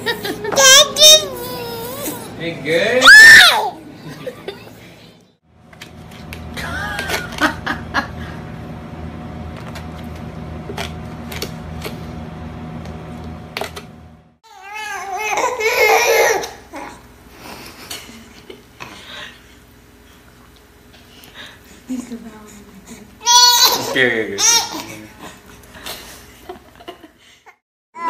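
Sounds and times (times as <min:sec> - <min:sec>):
baby babbling: 0:00.6 - 0:02.3
steady low hum: 0:03.8 - 0:14.4.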